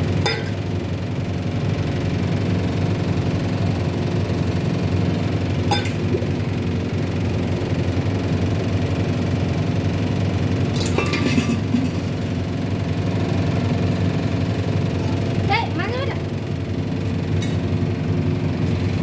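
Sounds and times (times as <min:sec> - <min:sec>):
metal utensils clattering: 0:10.8 - 0:11.9.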